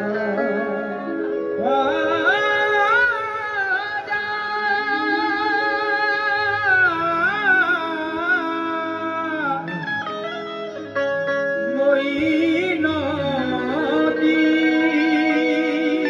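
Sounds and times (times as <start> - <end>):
person singing long held notes: 0.0 - 10.3, 11.6 - 16.0
harmonium drone: 0.0 - 16.0
keyboard plucked-string sound: 0.0 - 16.0.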